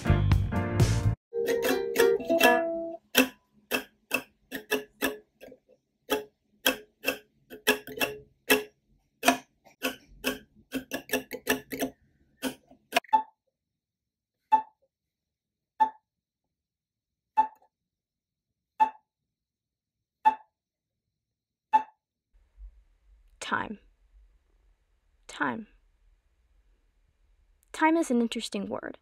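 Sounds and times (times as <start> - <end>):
clock ticking: 1.5 - 13.1.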